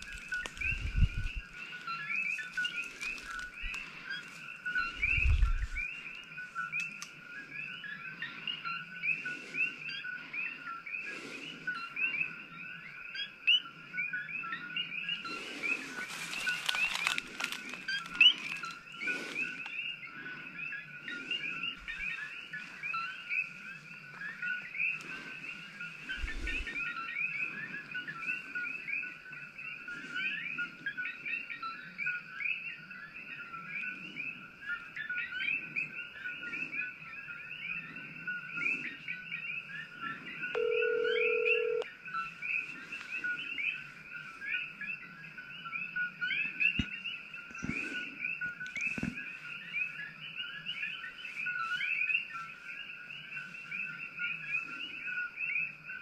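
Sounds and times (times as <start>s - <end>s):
frogs chirping: 0.0s - 56.0s
electronic beep: 40.5s - 41.9s.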